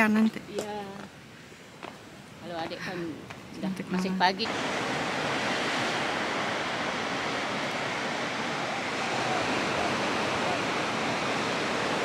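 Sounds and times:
ocean surf breaking: 0:04.0 - 0:12.0.

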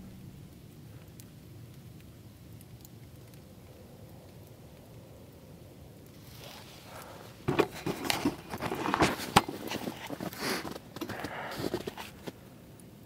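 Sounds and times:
crunching and rustling: 0:06.1 - 0:12.4.

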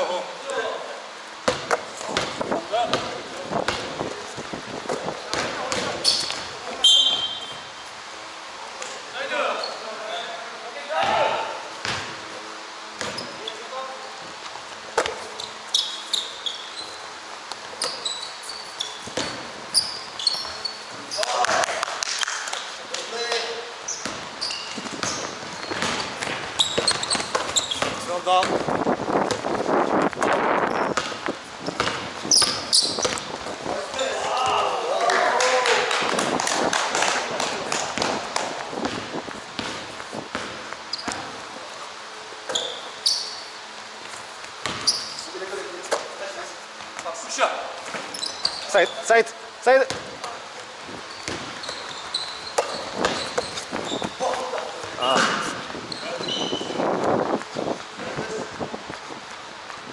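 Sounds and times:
basketball bouncing: 0:01.4 - 0:04.0, 0:04.9 - 0:07.7, 0:11.8 - 0:12.2, 0:13.0 - 0:13.3, 0:19.0 - 0:20.6, 0:24.0 - 0:33.5, 0:36.1 - 0:41.4, 0:44.6 - 0:45.0, 0:49.9 - 0:50.4, 0:51.2 - 0:56.3
sneakers squeaking on gym floor: 0:04.9 - 0:07.9, 0:09.4 - 0:10.4, 0:13.0 - 0:14.2, 0:14.9 - 0:21.4, 0:22.4 - 0:34.6, 0:37.3 - 0:41.5, 0:42.4 - 0:43.6, 0:44.5 - 0:46.1, 0:47.8 - 0:49.2, 0:49.9 - 0:59.8.

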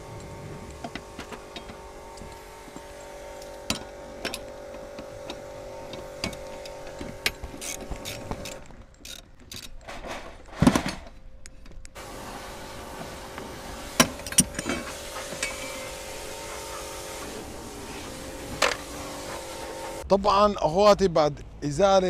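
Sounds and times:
steady hum: 0:00.0 - 0:09.0.

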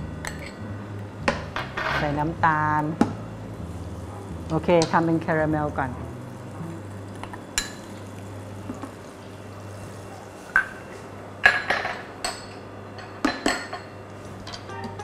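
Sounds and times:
steady low hum: 0:00.0 - 0:15.0
utensils knocking on frying pan: 0:01.2 - 0:02.2, 0:04.5 - 0:05.2.

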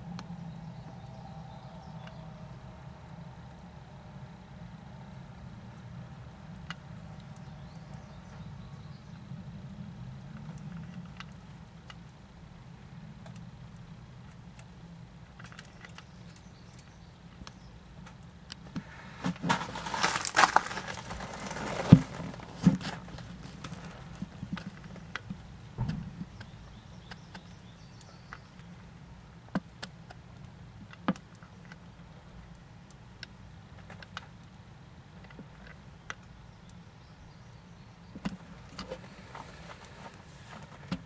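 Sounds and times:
faint low hum: 0:00.0 - 0:41.0
rustling: 0:18.7 - 0:26.6, 0:38.3 - 0:41.0
knocks: 0:25.8 - 0:26.3.

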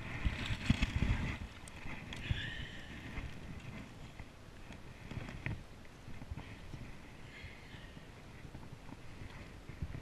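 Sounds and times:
fish splashing and thrashing: 0:00.0 - 0:05.6.

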